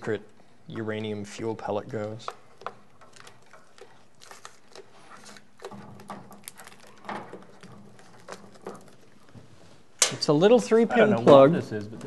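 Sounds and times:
hands clicking and tapping parts: 0.8 - 10.3.

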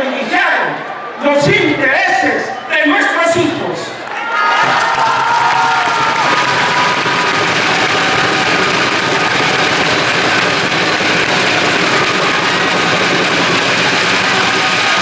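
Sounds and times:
crowd applauding and cheering: 4.0 - 15.0.

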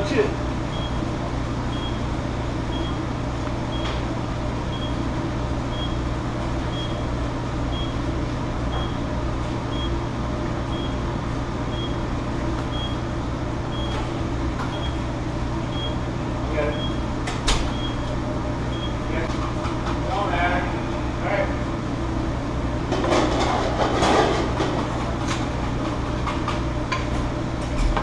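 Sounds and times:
kitchen exhaust fan hum: 0.0 - 28.0.

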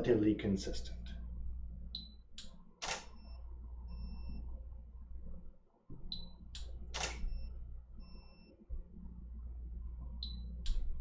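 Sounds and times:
sharp solenoid and shutter clicks: 2.4 - 3.2, 6.6 - 7.3.

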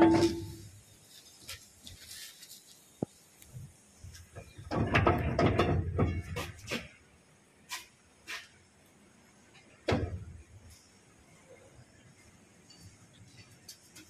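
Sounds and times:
metal scraping and clunking: 0.0 - 0.8, 4.4 - 7.0
metallic ring: 0.0 - 0.8.

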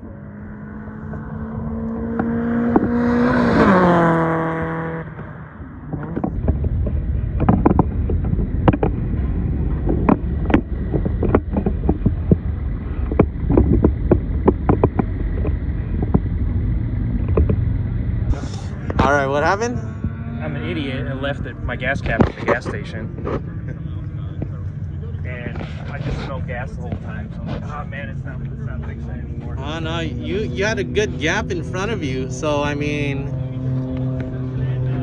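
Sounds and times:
race car passing at speed: 0.0 - 6.3, 23.0 - 35.0
low rumble: 0.0 - 35.0
sharp knocks and taps: 6.0 - 9.0, 9.7 - 16.4, 17.2 - 17.6.

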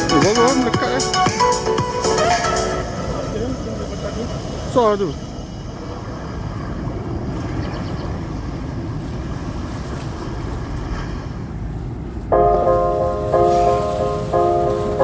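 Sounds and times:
background music: 0.0 - 4.7, 12.4 - 15.0
wind buffeting microphone: 2.8 - 15.0.

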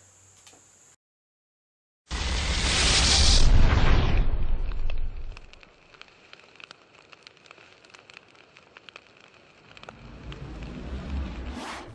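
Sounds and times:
loud boom: 2.1 - 5.4
fire crackling: 2.1 - 11.9
low rumble: 9.7 - 11.9.

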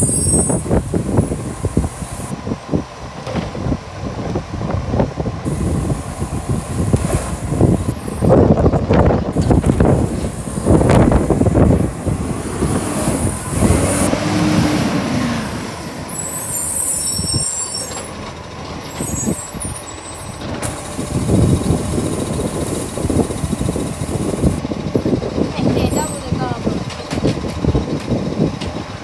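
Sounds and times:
garbage truck diesel engine: 0.0 - 29.0
air brakes releasing: 16.1 - 21.4.

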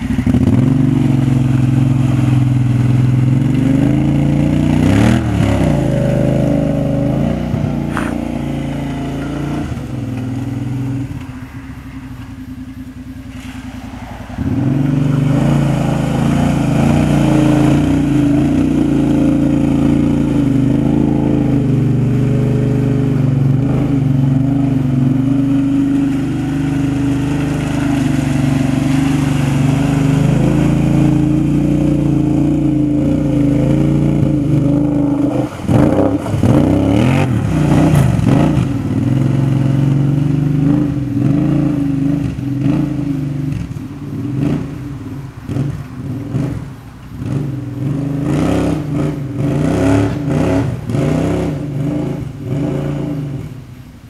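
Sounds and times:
quad engine running hard: 0.0 - 11.3, 14.4 - 44.7.

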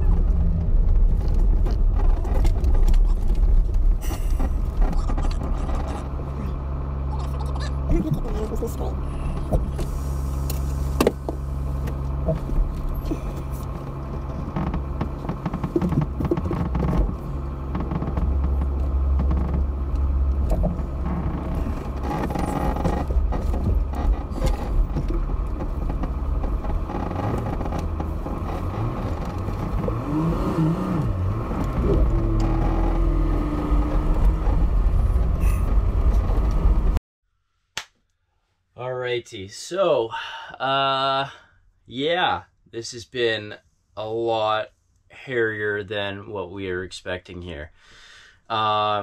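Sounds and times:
van engine rumbling: 0.0 - 37.0
van knocking and clattering: 11.0 - 30.0.

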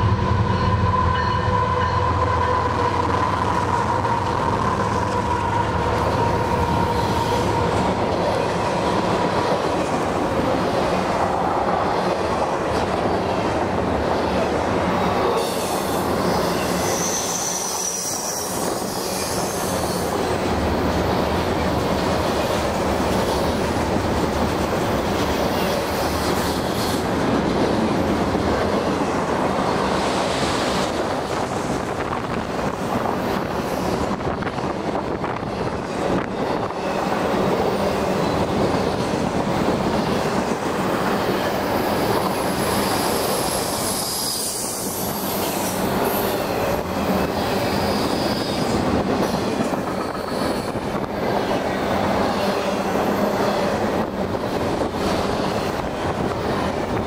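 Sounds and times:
train wheels rumbling on rails: 0.0 - 57.0
high wheel squeals: 15.4 - 20.2.

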